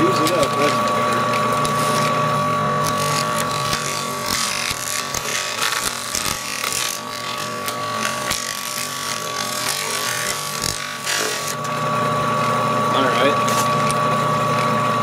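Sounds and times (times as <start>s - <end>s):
paper crumpling through gears: 2.8s - 11.6s.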